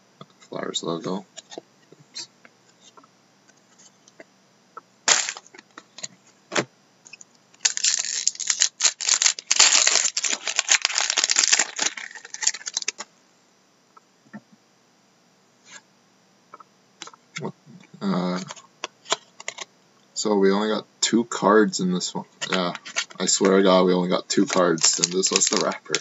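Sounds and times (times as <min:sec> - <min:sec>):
card pack wrapper crinkling and tearing: 0:05.1 - 0:05.6, 0:07.6 - 0:13.0, 0:24.4 - 0:26.0
cards snapping: 0:05.1 - 0:05.6.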